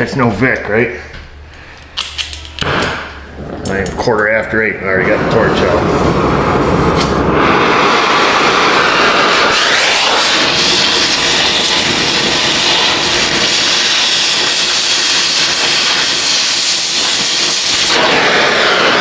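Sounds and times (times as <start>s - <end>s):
cutting torch flame hissing: 4.9s - 19.0s.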